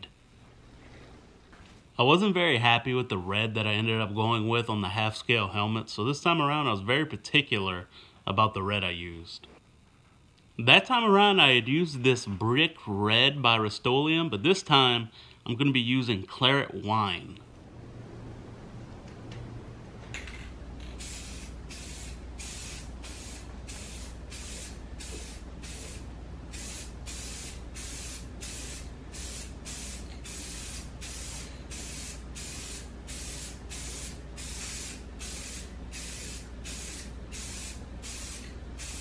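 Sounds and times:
steady low hum: 0:00.0 - 0:39.0
spray paint can hissing: 0:20.8 - 0:39.0.

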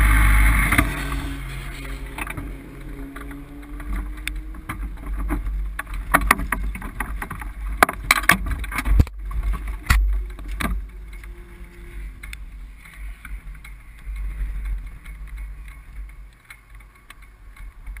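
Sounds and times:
sharp knocks and clicks: 0:00.6 - 0:11.3.

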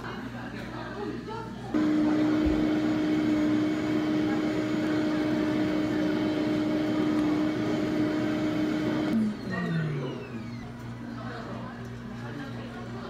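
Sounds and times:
machine motor humming: 0:01.8 - 0:10.8.

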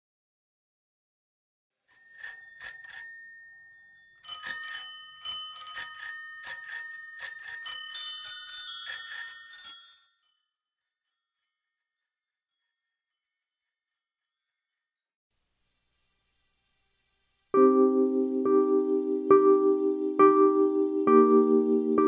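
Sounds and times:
bicycle bell ringing: 0:01.9 - 0:10.6
lower-pitched bicycle bell: 0:01.9 - 0:15.0.

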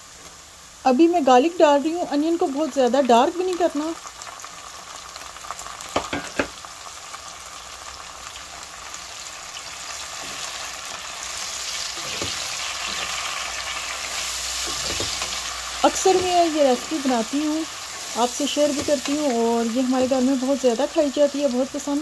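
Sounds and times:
onions sizzling in hot oil: 0:00.0 - 0:22.0
spatula stirring: 0:11.6 - 0:19.4.

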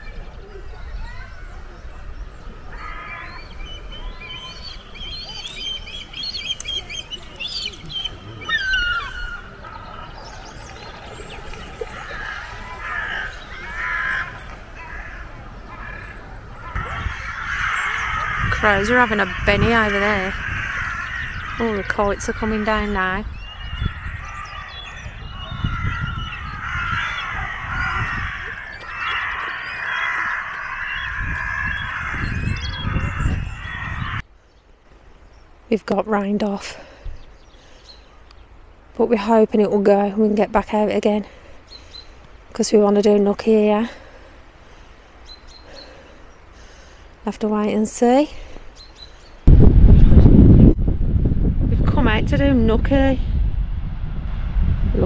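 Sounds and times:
wind rumbling on microphone: 0:00.0 - 0:47.8, 0:48.4 - 0:55.0
bird calls: 0:00.0 - 0:50.4
crows cawing: 0:02.7 - 0:34.2.

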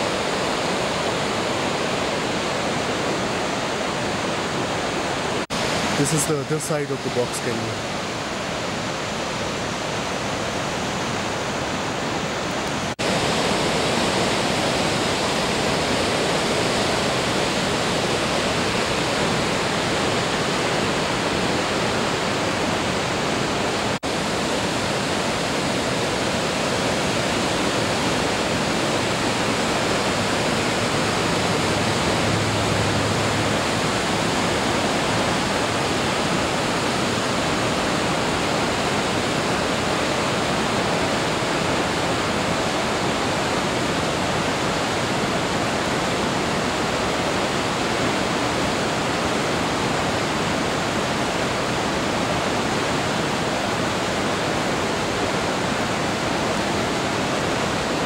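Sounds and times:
whitewater rushing: 0:00.0 - 0:58.0.

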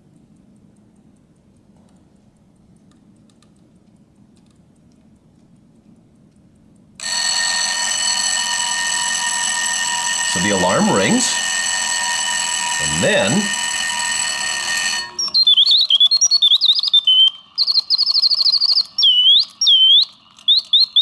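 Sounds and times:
faint clock clicks: 0:00.0 - 0:09.0
alarm clock ringing: 0:07.0 - 0:21.0.

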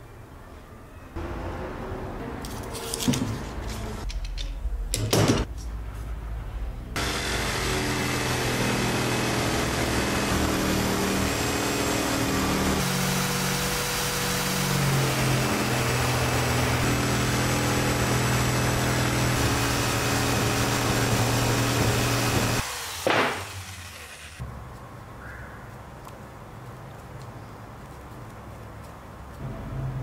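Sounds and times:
electric jigsaw cutting wood: 0:07.0 - 0:24.4.

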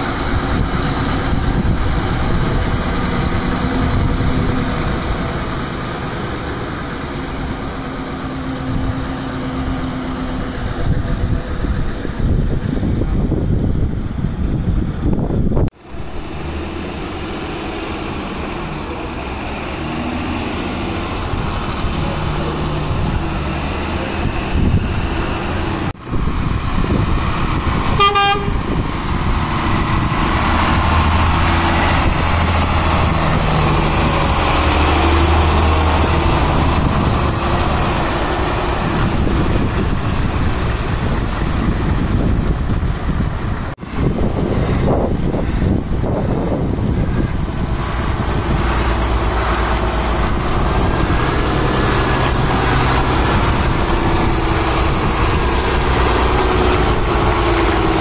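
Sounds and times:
heavy truck engine running: 0:00.0 - 0:58.0
truck horn toot: 0:27.9 - 0:28.8.

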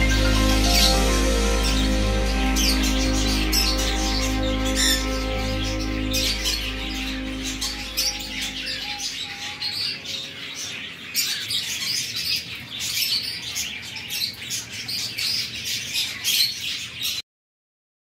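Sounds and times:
background music: 0:00.0 - 0:09.2
birds chirping and squawking: 0:00.0 - 0:17.2.

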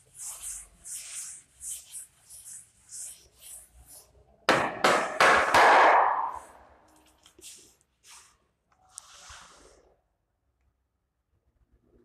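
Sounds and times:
duster wiping chalkboard: 0:00.0 - 0:04.3
loud knocks: 0:04.5 - 0:06.3.

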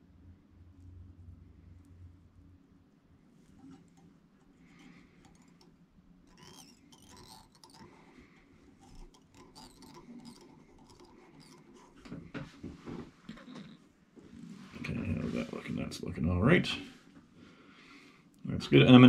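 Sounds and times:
thread rustling and ticking: 0:03.4 - 0:14.9.

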